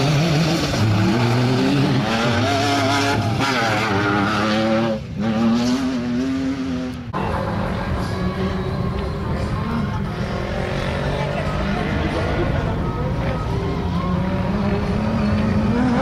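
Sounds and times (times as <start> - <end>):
race car engines revving: 0.0 - 16.0.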